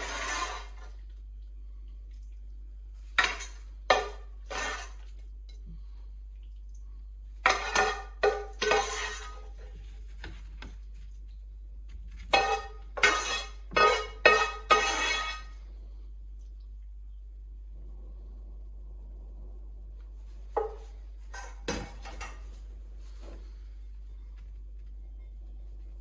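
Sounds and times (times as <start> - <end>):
metal spoon scraping steel pan: 0.0 - 0.9, 3.2 - 5.0, 7.5 - 9.6, 12.3 - 15.6.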